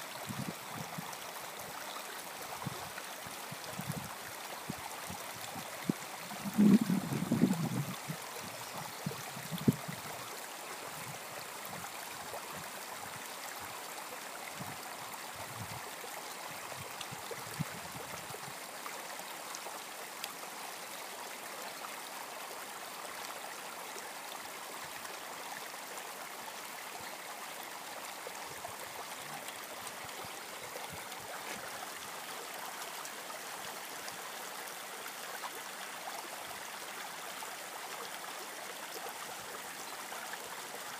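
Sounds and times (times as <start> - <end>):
creek trickling over rocks: 0.0 - 40.9
wind rumbling on microphone: 0.3 - 1.0, 3.5 - 4.1, 5.4 - 10.1.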